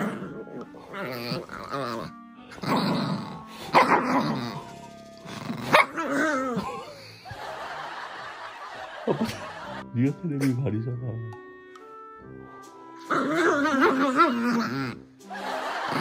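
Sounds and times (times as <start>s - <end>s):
dog growling and barking: 0.0s - 7.2s, 13.0s - 15.1s, 15.8s - 16.0s
background music: 0.0s - 16.0s.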